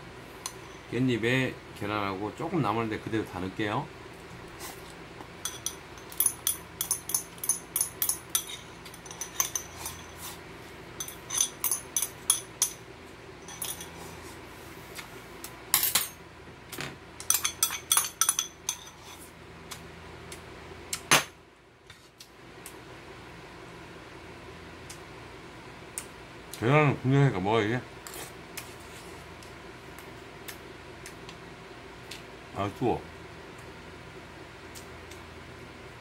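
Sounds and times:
metal chopsticks clinking on bowl: 5.4 - 10.1.

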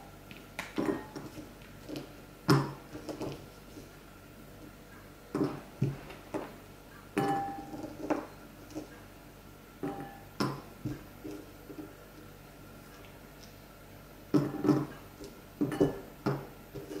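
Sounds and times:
ceramic bowl ringing: 7.2 - 7.8, 9.8 - 10.3.

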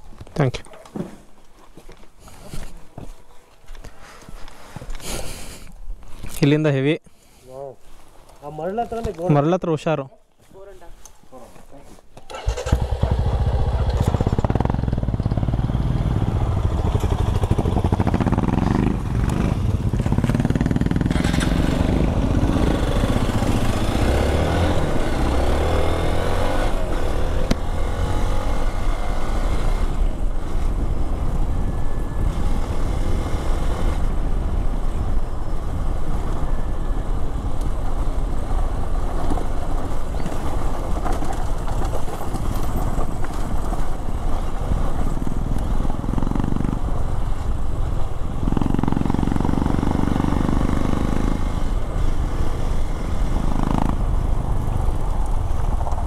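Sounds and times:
motorcycle engine accelerating: 12.3 - 56.0.

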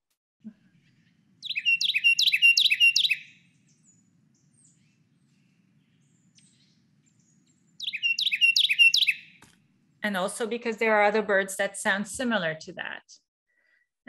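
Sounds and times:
wren song: 0.4 - 11.0.

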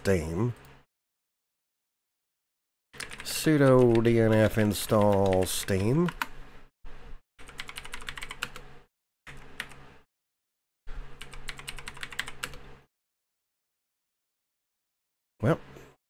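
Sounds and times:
typing on computer keyboard: 3.0 - 6.3, 7.4 - 8.6, 11.2 - 12.6.

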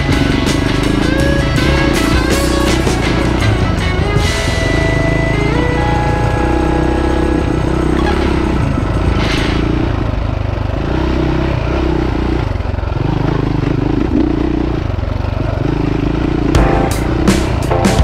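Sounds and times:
music with steady drumbeat: 0.0 - 6.7, 16.6 - 18.0
motorcycle engine revving: 0.0 - 18.0.

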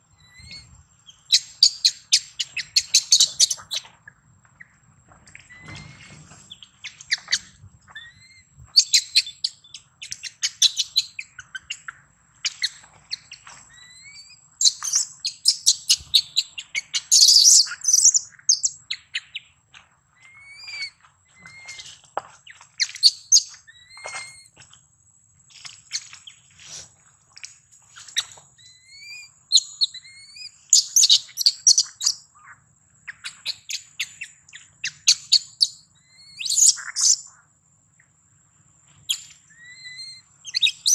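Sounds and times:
infant monkey squeaking: 6.9 - 9.6, 13.7 - 18.7, 20.3 - 21.9, 35.0 - 37.2, 39.1 - 40.9.

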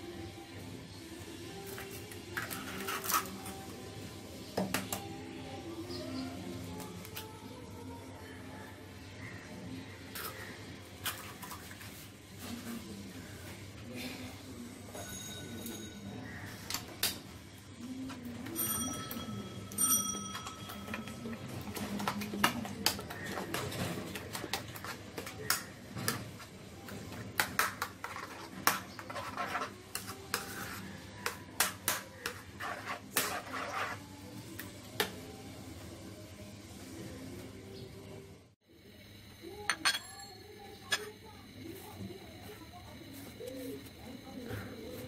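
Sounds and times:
bowl ringing pings: 14.9 - 16.5, 18.5 - 21.5, 39.5 - 41.4.

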